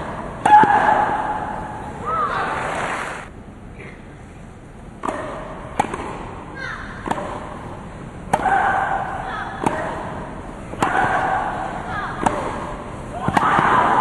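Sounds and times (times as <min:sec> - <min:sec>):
tennis ball hit with racquet: 0:05.0 - 0:06.4, 0:07.0 - 0:07.7, 0:08.3 - 0:11.5, 0:12.1 - 0:14.0.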